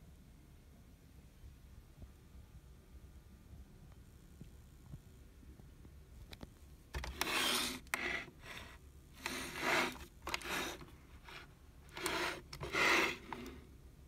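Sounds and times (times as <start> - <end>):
short rasping rubbing noises: 7.0 - 13.6.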